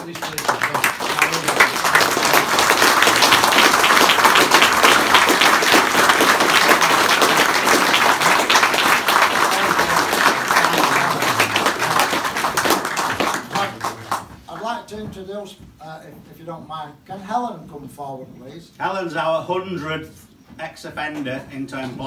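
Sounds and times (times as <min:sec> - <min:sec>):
audience applauding: 0:00.0 - 0:14.7.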